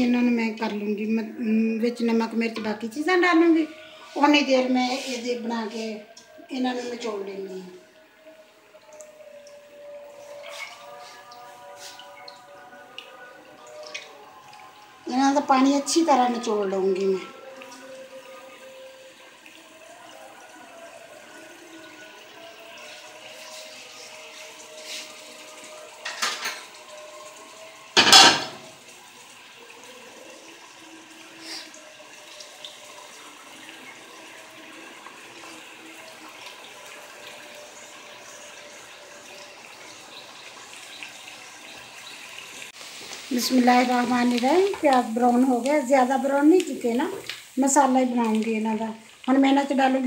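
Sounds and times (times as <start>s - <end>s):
water dripping into a pot: 6.0s - 50.0s.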